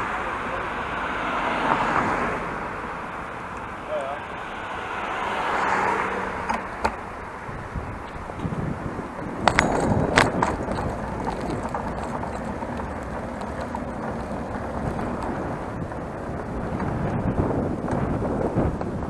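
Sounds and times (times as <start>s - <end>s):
bicycle tyres rolling: 0.0s - 19.0s
wind noise: 4.8s - 19.0s
bicycle rattling and clicking: 6.4s - 19.0s.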